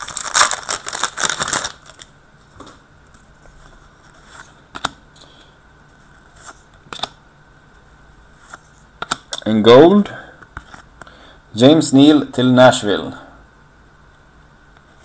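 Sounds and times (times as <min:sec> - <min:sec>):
wrapper tearing and crinkling: 0:00.0 - 0:02.1.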